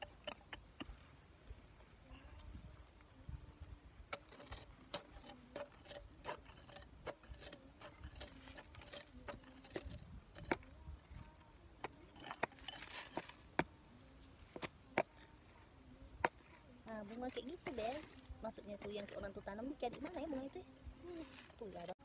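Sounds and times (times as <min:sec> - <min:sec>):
wooden stick scraping gravelly soil: 0:00.0 - 0:22.0.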